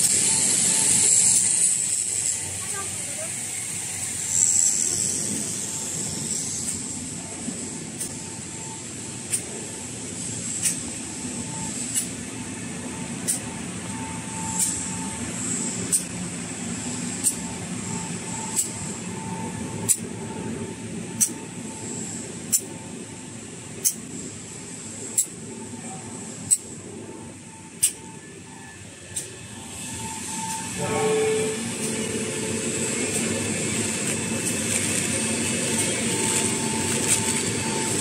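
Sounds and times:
machinery humming: 0.0 - 38.0
sharp machine clicks: 10.4 - 11.0, 11.7 - 12.2, 13.2 - 13.6, 15.9 - 16.2, 17.2 - 17.6, 18.4 - 18.9, 19.8 - 20.1, 21.1 - 21.6, 22.5 - 22.8, 23.8 - 24.1, 25.1 - 25.5, 26.4 - 26.8, 27.8 - 28.2.

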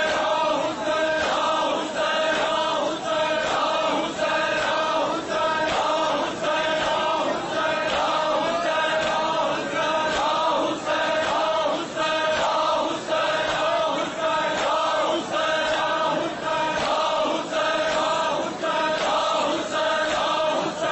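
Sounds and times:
men chanting in unison: 0.0 - 20.9.

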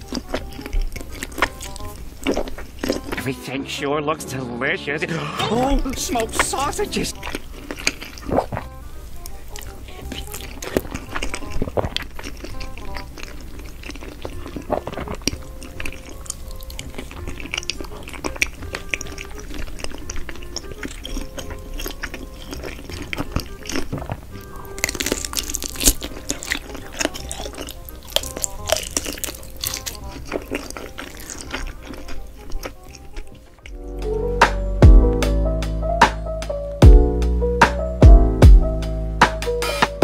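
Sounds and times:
chewing with wet crunches: 0.0 - 3.3, 5.5 - 34.0
soft background music: 0.0 - 40.0.

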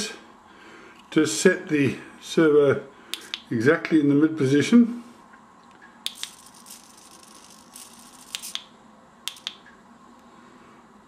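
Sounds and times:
servo whirring: 6.1 - 8.6
sharp clicks: 6.1 - 8.7, 9.3 - 9.8.

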